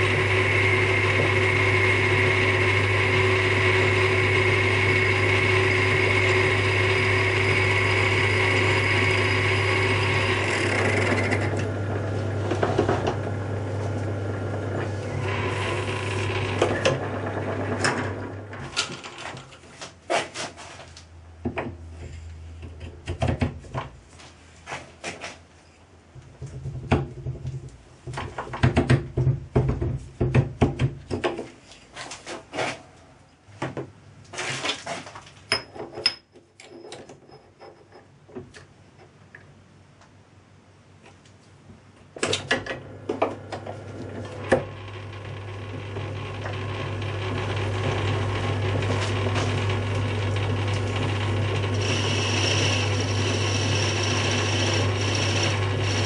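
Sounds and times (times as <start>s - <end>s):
metal lathe humming: 0.0s - 18.6s, 43.2s - 56.0s.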